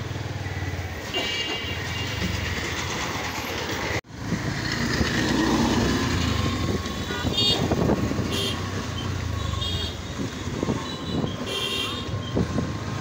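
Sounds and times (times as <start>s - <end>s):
road noise: 0.0s - 13.0s
vehicle engine rumble: 0.0s - 13.0s
car horn toots: 6.9s - 8.7s, 10.9s - 12.2s.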